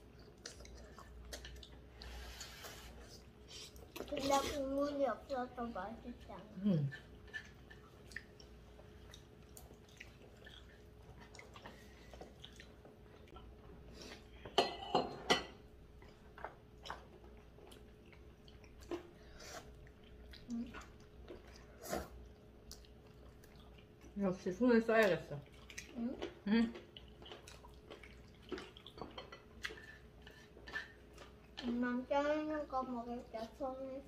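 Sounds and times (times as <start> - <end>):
chewing: 0.0 - 4.6, 6.9 - 14.2, 16.0 - 24.2, 25.4 - 31.8
faint steady hum: 0.0 - 34.0.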